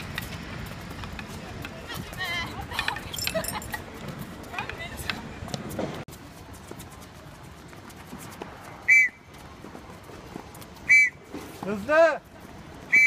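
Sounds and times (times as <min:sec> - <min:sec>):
coach's whistle blasts: 0:08.9 - 0:09.2, 0:10.8 - 0:11.3.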